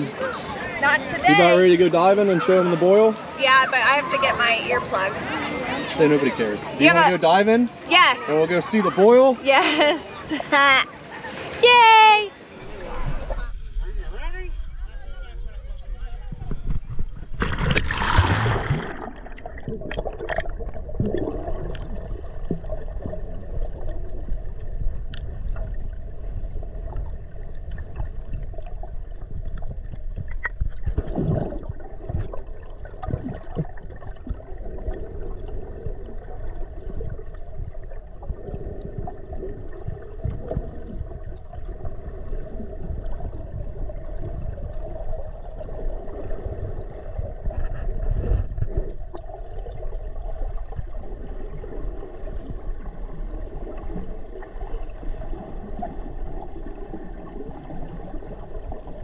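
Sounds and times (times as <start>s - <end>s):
steady low rumble: 12.6s - 17.4s, 18.5s - 59.0s
underwater gurgling and bubbling: 16.3s - 59.0s
splash into water: 17.4s - 22.7s.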